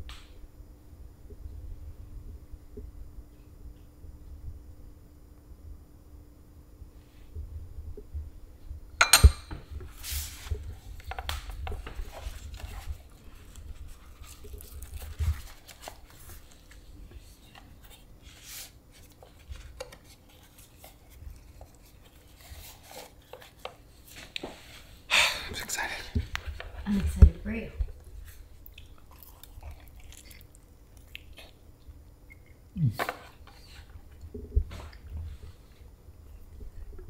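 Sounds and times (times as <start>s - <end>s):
cutlery and dishes clinking: 9.0s - 9.6s.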